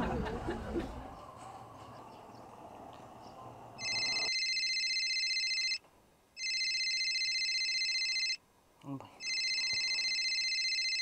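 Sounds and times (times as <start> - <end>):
telephone ringing: 3.8 - 5.8, 6.4 - 8.4, 9.2 - 11.0.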